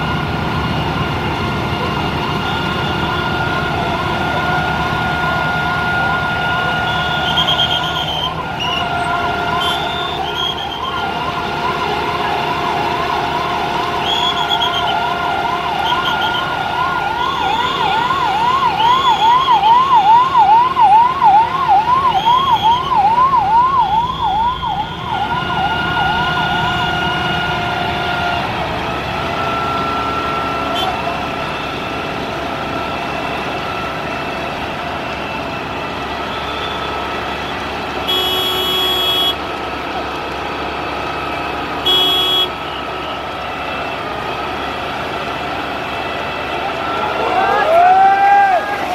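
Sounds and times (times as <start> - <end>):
fire engine siren wailing: 0.0 - 48.9
steady held siren tone: 2.4 - 27.5.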